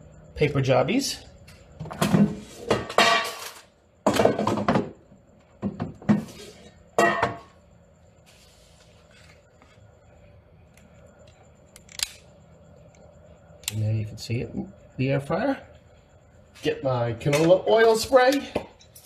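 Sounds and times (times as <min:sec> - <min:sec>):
dishes clattering: 0:07.0 - 0:07.5.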